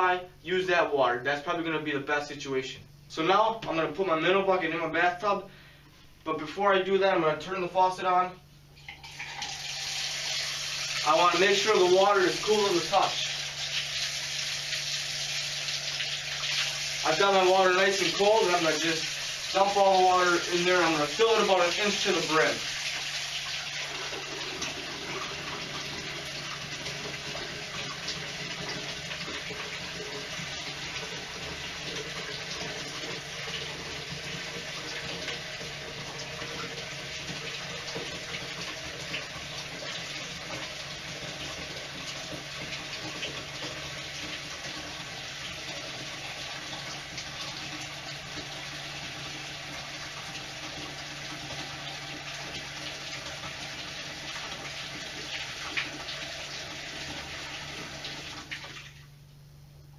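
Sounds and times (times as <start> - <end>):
faucet running into bucket: 8.8 - 59.0.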